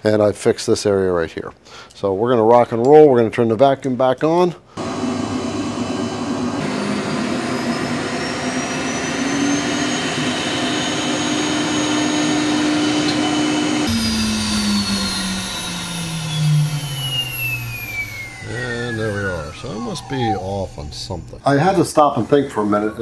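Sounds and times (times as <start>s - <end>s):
vacuum motor rushing whine: 4.8s - 21.4s
motor winding down: 4.8s - 21.5s.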